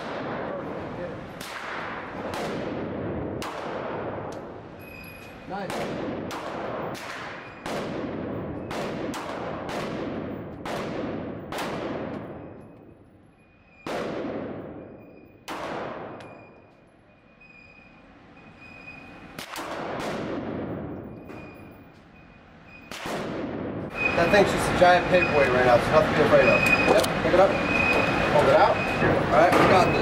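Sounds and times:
handgun shots echoing: 1.4 - 4.5, 5.6 - 12.8, 13.8 - 16.5.

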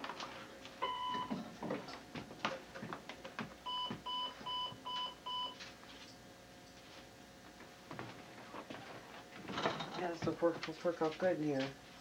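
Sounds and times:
answering machine beeps: 0.8 - 1.3, 3.7 - 5.6.

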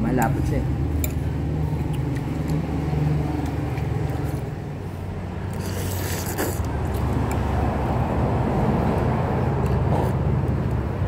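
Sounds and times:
noodles being slurped: 5.4 - 7.2.

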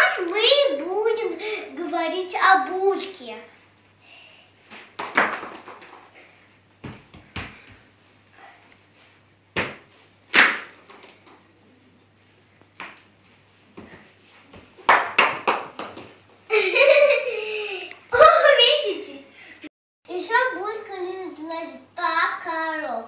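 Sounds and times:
knocks and thumps on hard floor: 5.0 - 6.1, 6.8 - 7.7.

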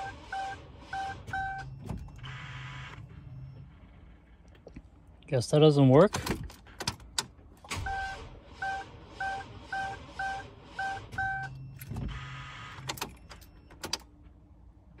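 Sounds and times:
electronic warning beeps: 0.0 - 3.9, 7.8 - 13.8.

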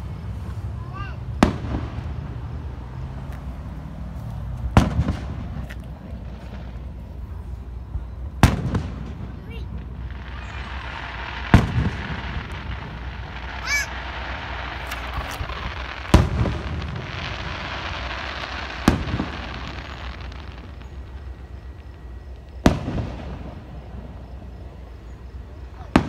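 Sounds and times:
background hiss: 0.0 - 26.0
fireworks bursting: 0.0 - 26.0.

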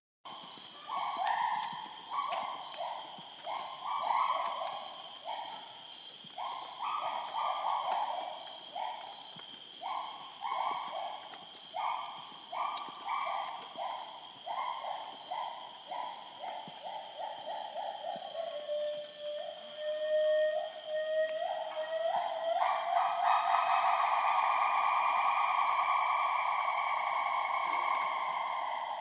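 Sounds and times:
gibbon hooting song: 18.3 - 29.0
steady high drone: 22.8 - 29.0.

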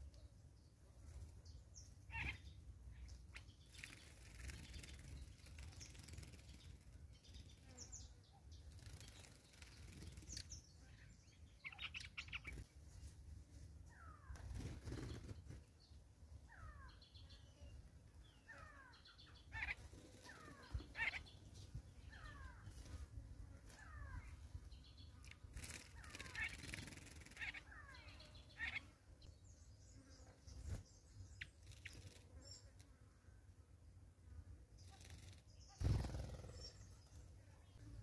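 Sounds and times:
higher bird chirps: 2.1 - 6.7, 7.3 - 12.6.

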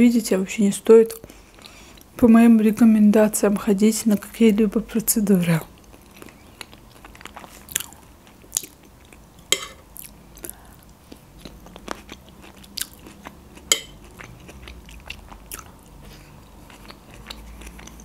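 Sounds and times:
chewing crunchy salad: 5.7 - 18.0.

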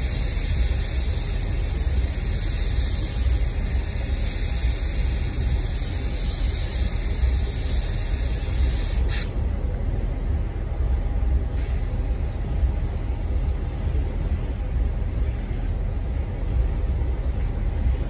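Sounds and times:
hiss: 0.0 - 9.4, 11.5 - 12.5
freight train rumbling past: 0.0 - 18.0.

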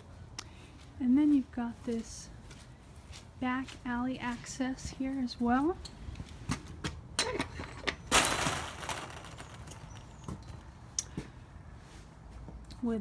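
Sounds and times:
footsteps: 0.6 - 7.0.

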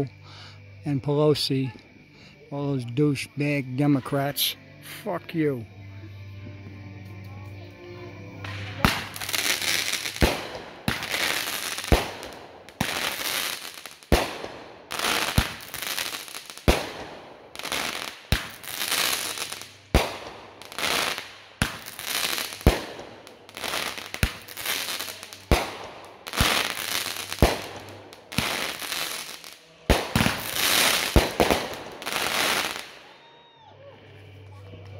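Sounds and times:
fireworks crackling fizz: 8.3 - 33.1
fireworks bangs: 8.4 - 33.1.

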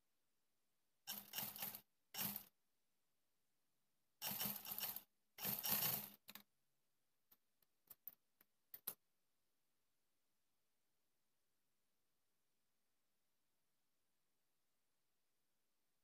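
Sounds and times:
sewing machine stitching: 1.1 - 2.5, 4.2 - 6.4.

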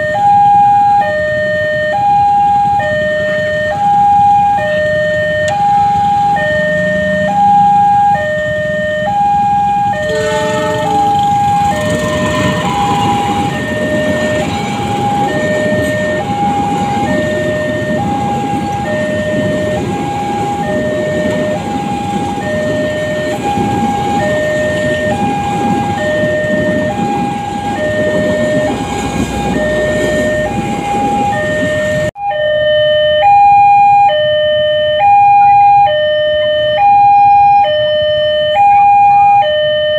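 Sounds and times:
two-tone crossing alarm: 0.0 - 39.9
passing train rumble: 2.5 - 32.2.

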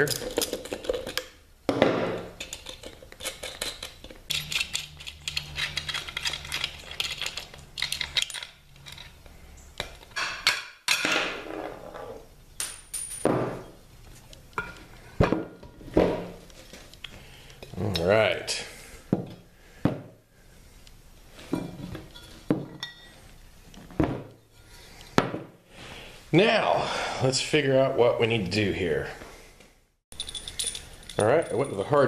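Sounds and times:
metal tools clinking and knocking: 2.4 - 9.2, 12.6 - 13.7, 21.6 - 23.2, 30.1 - 32.0.

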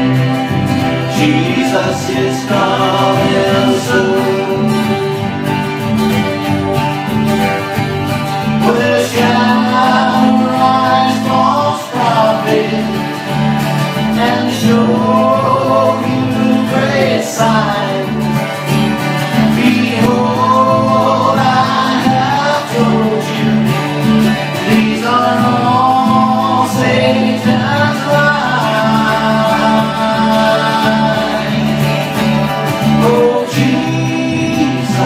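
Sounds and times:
man singing: 0.0 - 5.6, 8.4 - 35.0
band playing country gospel: 0.0 - 35.0.

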